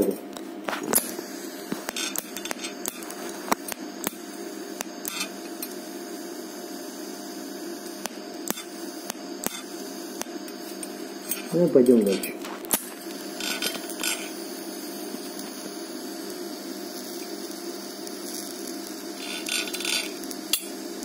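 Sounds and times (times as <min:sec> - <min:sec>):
welding arc hissing and buzzing: 0:00.0 - 0:21.0
sharp clicks and crackles: 0:00.3 - 0:04.2, 0:07.8 - 0:14.3, 0:18.1 - 0:20.7.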